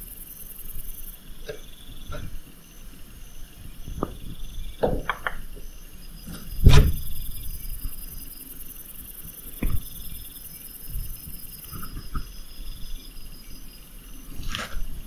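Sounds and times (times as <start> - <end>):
crickets chirping: 0.0 - 15.0
loud thump: 6.6 - 7.2.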